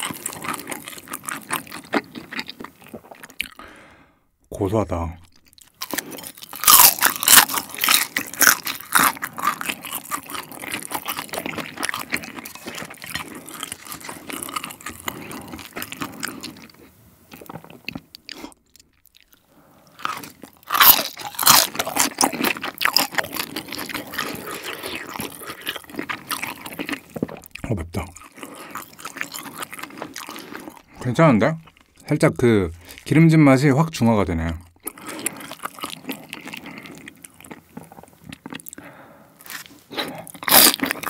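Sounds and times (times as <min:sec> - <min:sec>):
crunching and chewing: 0:00.0 - 0:03.7, 0:05.2 - 0:32.0, 0:34.7 - 0:41.0.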